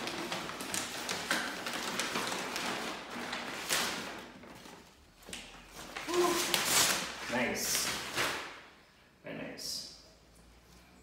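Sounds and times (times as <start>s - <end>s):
paper rustling and crinkling: 0.0s - 8.7s.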